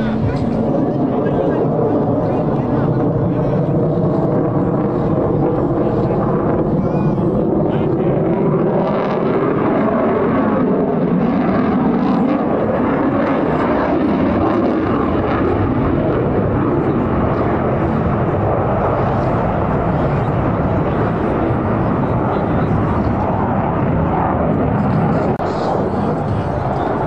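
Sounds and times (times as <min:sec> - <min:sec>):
fighter jet engine noise: 0:00.0 - 0:27.0.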